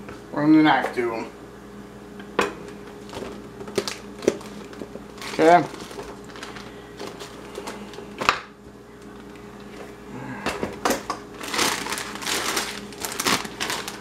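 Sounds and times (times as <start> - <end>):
plastic packaging crinkling: 3.0 - 8.1, 11.3 - 14.0.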